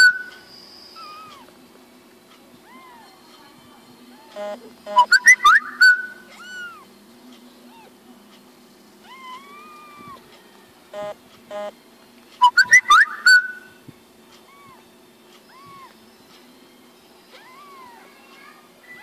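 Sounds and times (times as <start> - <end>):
kitten mewing: 6.3 - 6.9, 9.0 - 10.2, 14.5 - 14.8, 15.5 - 16.0, 17.4 - 18.1
short buzzy sounds: 11.0 - 11.7.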